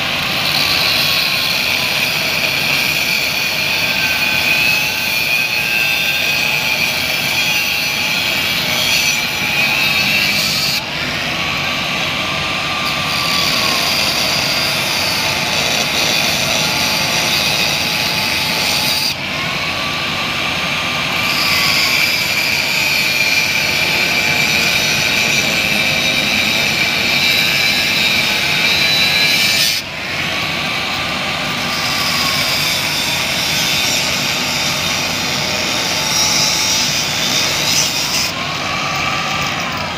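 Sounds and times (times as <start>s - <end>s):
angle grinder cutting metal pipe: 0.0s - 39.9s
grinder motor whine: 0.0s - 39.9s.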